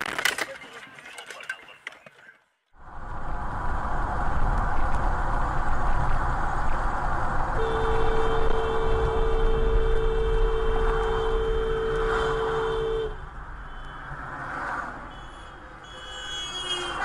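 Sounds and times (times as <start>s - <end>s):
tyre and wind noise in car: 2.8s - 14.0s
car horn long blast: 7.6s - 14.1s, 15.1s - 17.0s.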